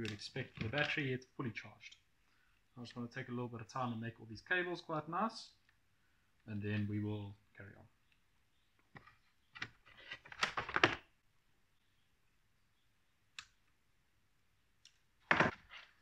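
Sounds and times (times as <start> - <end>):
cables clicking and rustling: 0.0 - 1.1.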